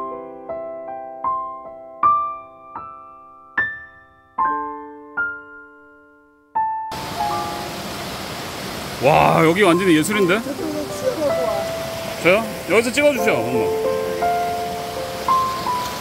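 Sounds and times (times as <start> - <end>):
gentle piano music: 0.0 - 16.0
stream cascading over rocks: 6.9 - 16.0.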